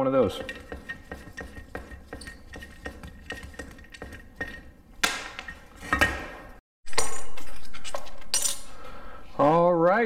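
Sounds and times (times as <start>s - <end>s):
metal parts clattering on workbench: 5.3s - 8.7s.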